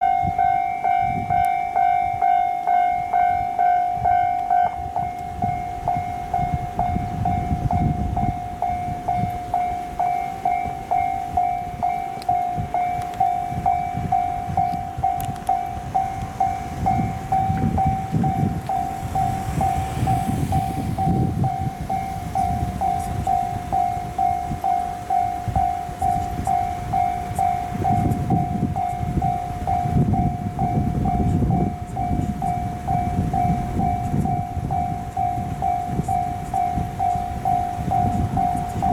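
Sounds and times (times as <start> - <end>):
level crossing bell dinging: 0.0 - 38.9
low rumbling: 3.0 - 38.9.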